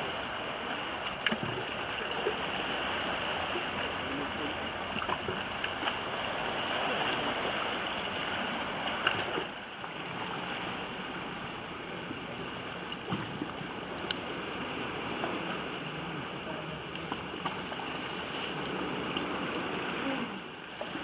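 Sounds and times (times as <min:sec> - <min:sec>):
sea water lapping on rocky shore: 0:00.0 - 0:21.0.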